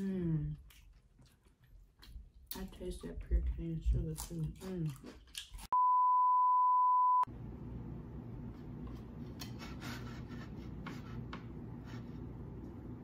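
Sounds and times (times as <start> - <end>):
low room hum: 7.1 - 13.0.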